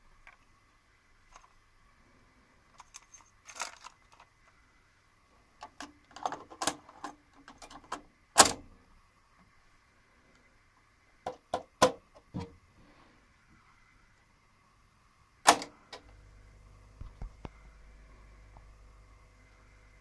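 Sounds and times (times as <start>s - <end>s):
cassette clicking into deck: 5.6s - 8.6s, 15.5s - 16.0s.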